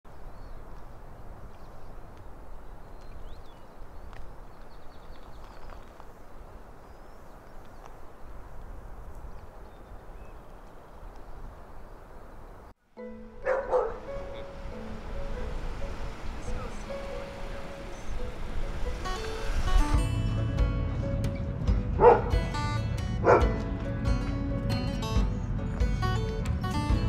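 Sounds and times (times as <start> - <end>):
low outdoor background noise: 0.1 - 19.8.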